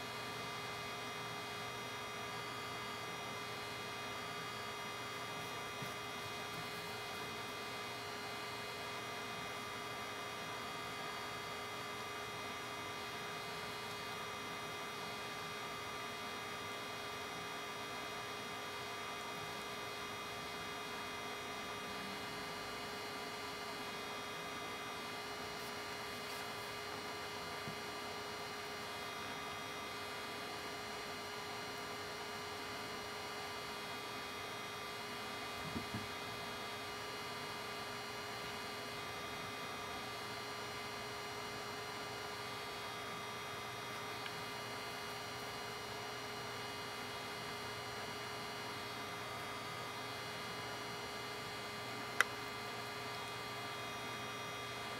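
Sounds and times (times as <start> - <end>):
electrical hum with high tones: 0.0 - 54.9.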